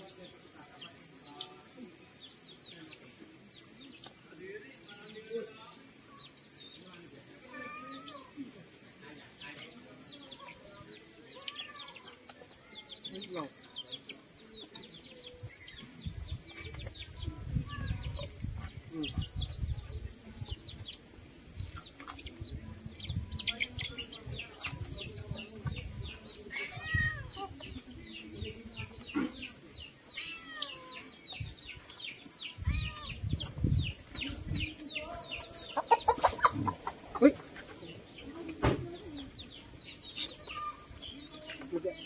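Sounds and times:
chickens clucking: 5.8s - 42.0s
chicks peeping: 9.1s - 42.0s.

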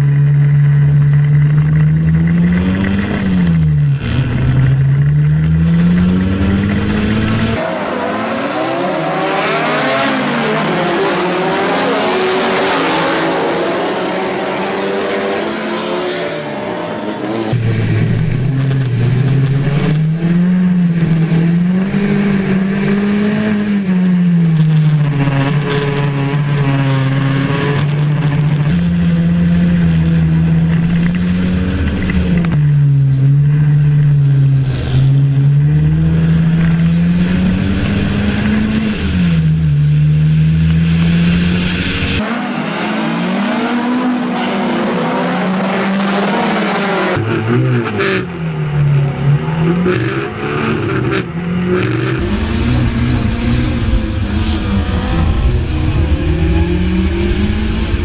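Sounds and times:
racing car engine revving: 0.0s - 58.0s
wind and road noise: 0.0s - 58.0s.

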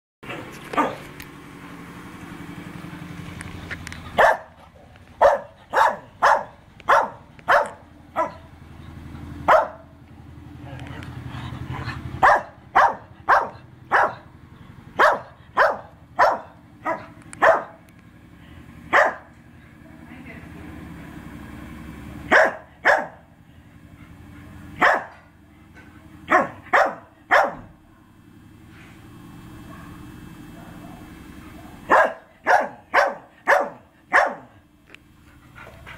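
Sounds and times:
dog barking: 0.8s - 1.1s, 4.2s - 4.6s, 5.2s - 8.5s, 9.5s - 9.9s, 12.2s - 14.3s, 15.0s - 17.8s, 18.9s - 19.3s, 22.3s - 23.3s, 24.8s - 25.2s, 26.3s - 28.1s, 29.6s - 34.6s.

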